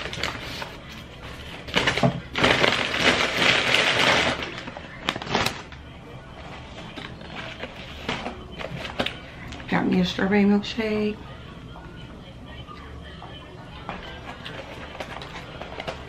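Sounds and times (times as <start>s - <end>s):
packaging crinkling and rustling: 0.0s - 9.6s, 14.0s - 16.0s.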